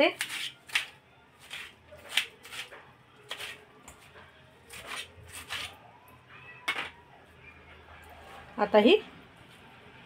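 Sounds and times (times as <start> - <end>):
wet greens scraping metal plate: 0.0 - 3.7, 4.7 - 5.8.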